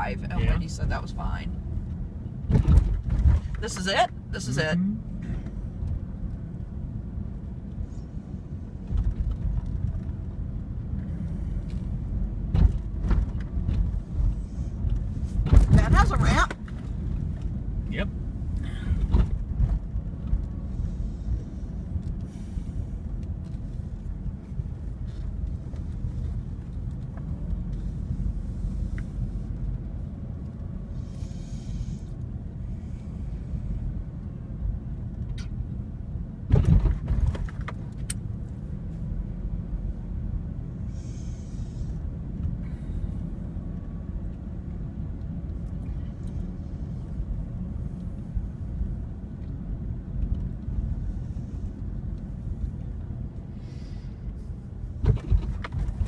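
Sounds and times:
car engine and tyre rumble: 0:00.0 - 0:56.0
car thumps: 0:02.4 - 0:03.6, 0:12.5 - 0:13.9, 0:15.4 - 0:16.8, 0:36.5 - 0:37.8.

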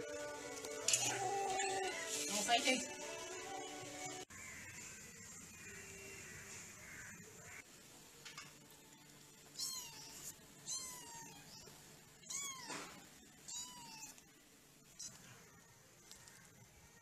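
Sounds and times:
kitten mewing: 0:09.6 - 0:14.2.

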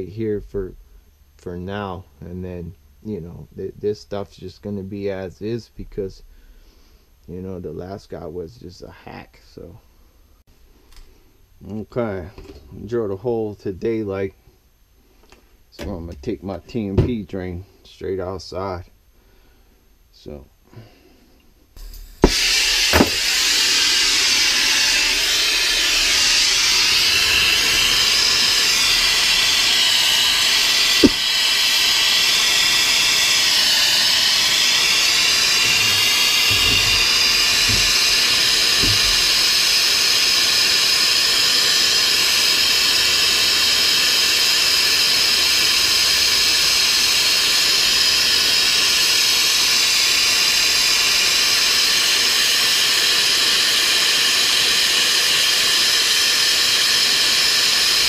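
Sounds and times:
sharp click: 0:21.8 - 0:23.3, 0:31.0 - 0:31.3
torch flame hissing: 0:21.8 - 0:58.0.

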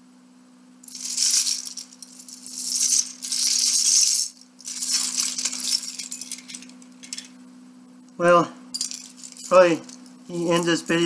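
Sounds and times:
plastic bricks clattering: 0:00.9 - 0:07.3.

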